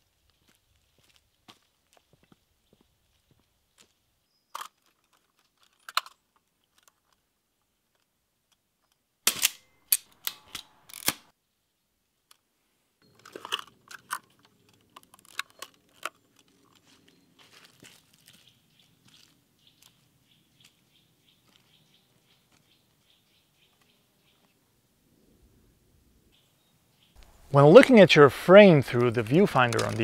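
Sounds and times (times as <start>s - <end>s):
camera mechanism clicks and clacks: 9.3s - 11.2s, 13.2s - 16.5s, 29.6s - 30.0s.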